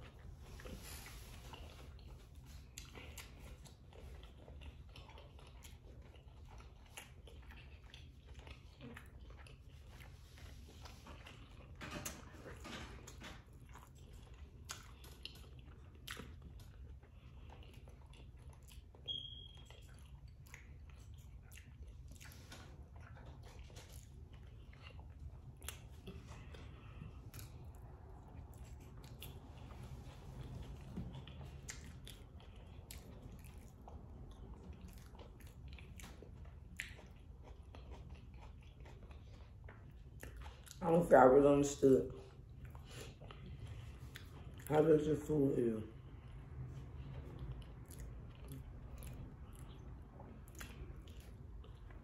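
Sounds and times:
person chewing food: 0:00.0 - 0:44.8, 0:45.9 - 0:52.0
short high squeak: 0:19.1 - 0:19.6.

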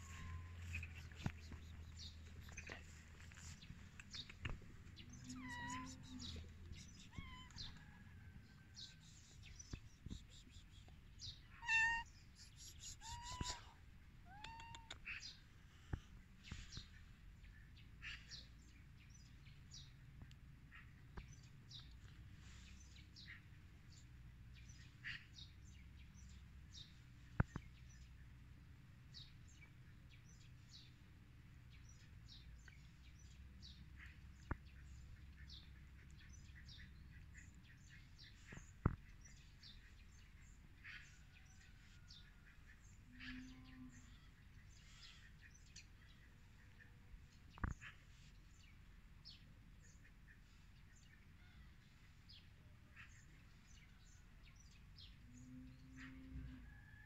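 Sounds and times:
cat meowing: 0:05.4 - 0:06.0, 0:07.1 - 0:07.6, 0:11.6 - 0:12.1, 0:14.3 - 0:15.0.

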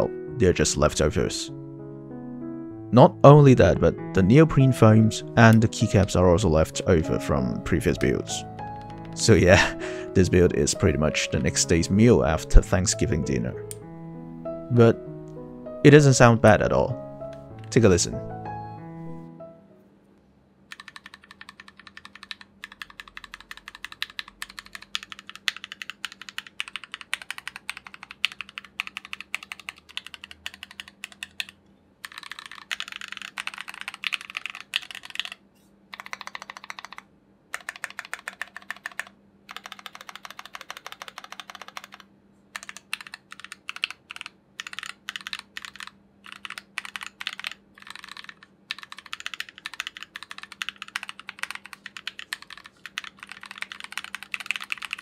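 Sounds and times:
mechanical keyboard keystrokes: 0:08.0 - 0:09.7, 0:20.7 - 0:55.0.

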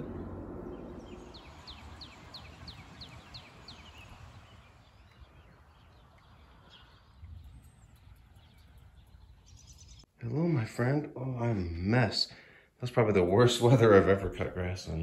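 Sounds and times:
songbird singing falling notes: 0:00.0 - 0:10.1
low outdoor background noise: 0:00.0 - 0:15.0.

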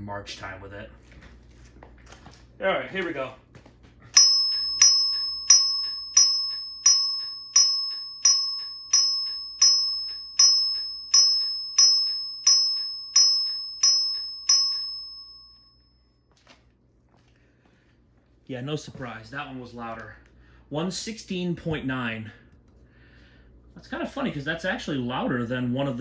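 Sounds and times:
fire alarm chime: 0:04.1 - 0:16.3.

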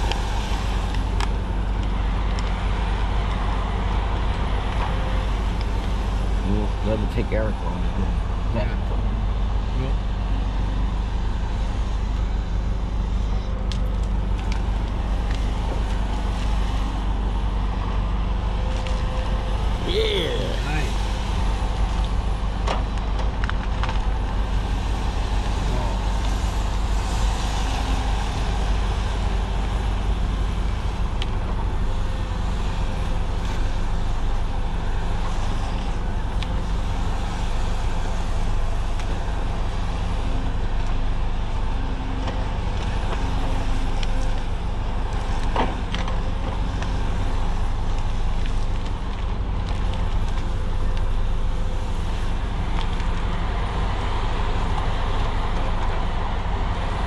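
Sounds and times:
heavy diesel engine running: 0:00.0 - 0:57.0.

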